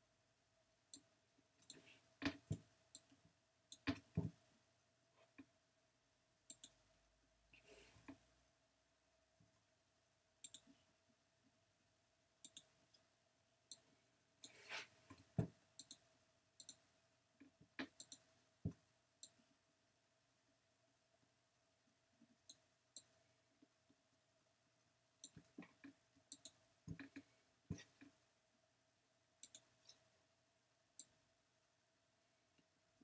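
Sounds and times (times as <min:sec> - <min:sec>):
computer mouse clicks: 0:06.5 - 0:06.8, 0:10.4 - 0:10.7, 0:12.4 - 0:12.7, 0:16.6 - 0:16.8, 0:17.8 - 0:18.3, 0:26.3 - 0:27.3, 0:29.4 - 0:29.7.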